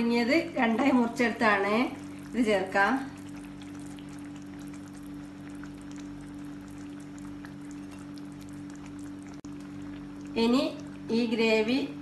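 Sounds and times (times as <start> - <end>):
gravy simmering with small pops: 1.8 - 11.1.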